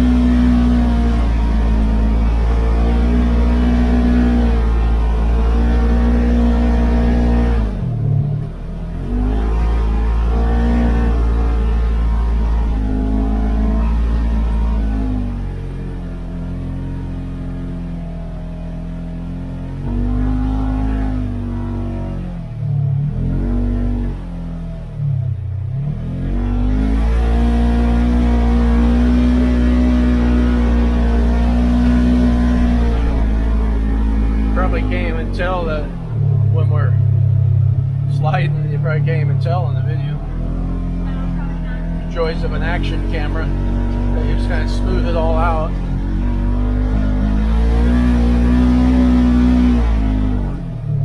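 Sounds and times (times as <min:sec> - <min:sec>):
vehicle engine under load: 0:00.0 - 0:51.0.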